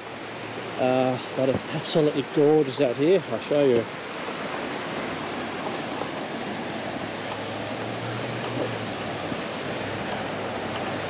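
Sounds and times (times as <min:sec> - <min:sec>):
river water rushing: 0:00.0 - 0:11.0.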